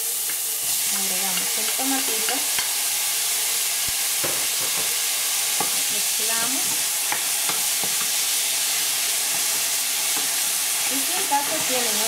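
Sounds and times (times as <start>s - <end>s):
vegetables sizzling in hot oil: 0.0s - 12.0s
spatula scraping and knocking pan: 4.2s - 12.0s.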